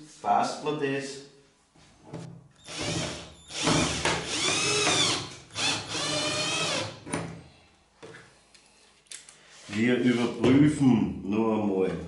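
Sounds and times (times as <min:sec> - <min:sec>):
cordless drill motor whine: 0:02.6 - 0:06.9.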